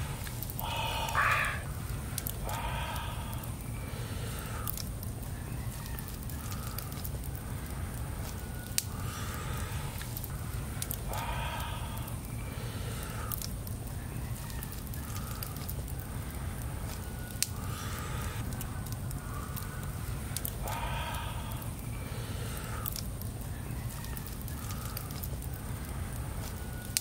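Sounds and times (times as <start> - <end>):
low rumble: 0.0 - 5.7
chickens clucking: 0.6 - 1.6.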